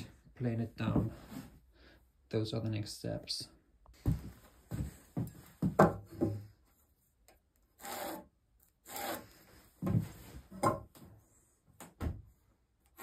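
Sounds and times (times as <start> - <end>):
scratching a line on wood: 7.8 - 9.4.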